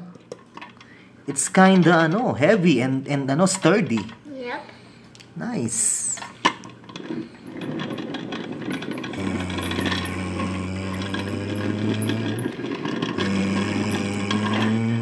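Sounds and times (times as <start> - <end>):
low steady hum: 0.0 - 15.0
toy truck wheels rattling: 6.8 - 15.0.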